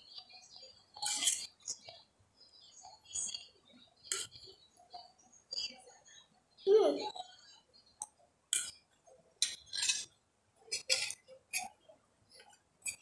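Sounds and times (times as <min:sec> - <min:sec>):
metal spoon scraping a plate: 0:01.0 - 0:01.5, 0:09.4 - 0:10.1, 0:10.7 - 0:11.8.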